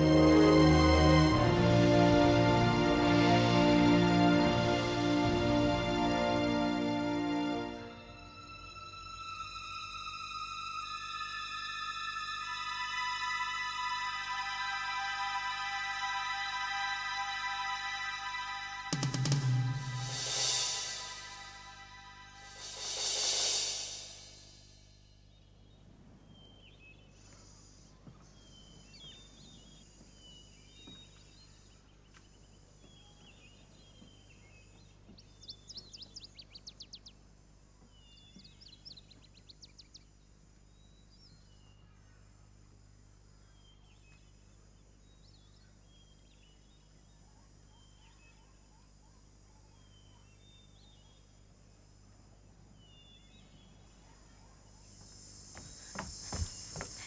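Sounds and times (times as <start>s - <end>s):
high insect drone: 8.1s - 25.2s, 50.4s - 57.0s
small birds chirping: 24.2s - 57.0s.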